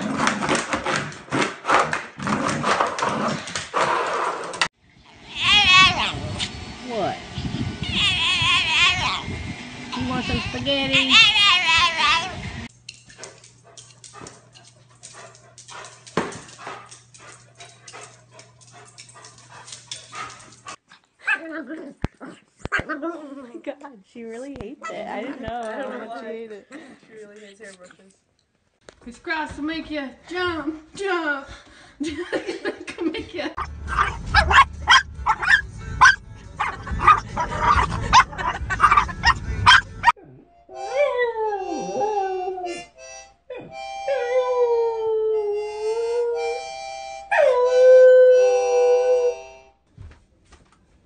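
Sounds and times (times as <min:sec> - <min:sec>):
dog whimpering and yipping: 0:33.9 - 0:40.2.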